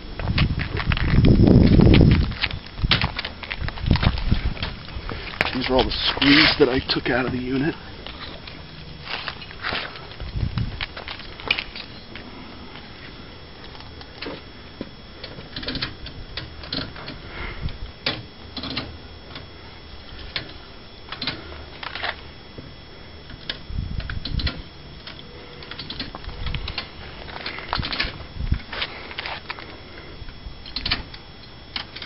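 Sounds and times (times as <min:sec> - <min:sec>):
dull low thumps: 0:00.0 - 0:06.0, 0:09.1 - 0:11.4.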